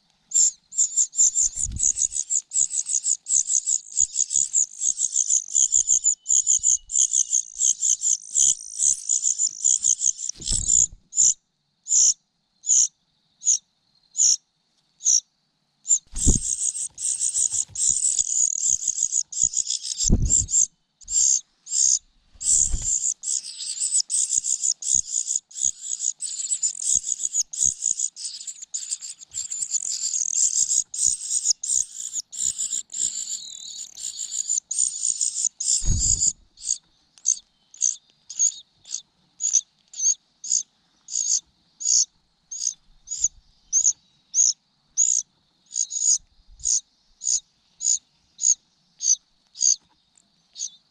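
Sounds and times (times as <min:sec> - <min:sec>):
nestling birds begging: 0:00.3 - 0:13.6, 0:15.9 - 0:49.9
dull low thumps: 0:35.8 - 0:36.4.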